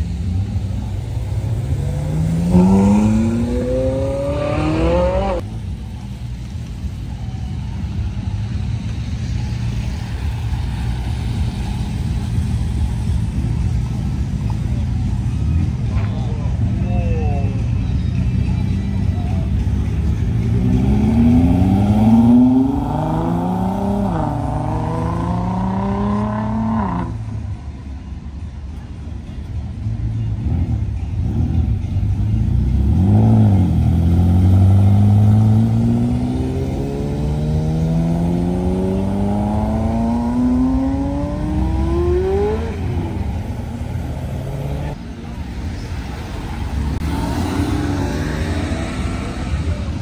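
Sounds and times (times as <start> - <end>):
sports car engine blipped: 0.0 - 50.0
sports car engine revving: 0.4 - 5.4, 20.3 - 27.3, 32.4 - 45.0.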